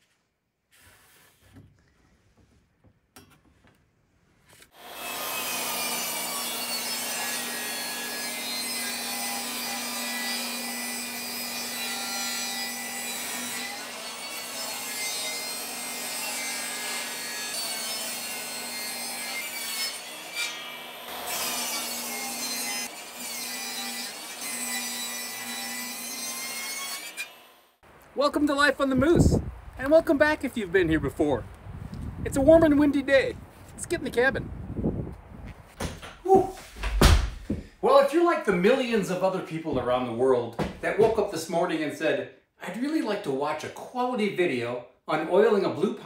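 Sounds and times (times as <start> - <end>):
table saw ripping a board: 4.5 - 27.4.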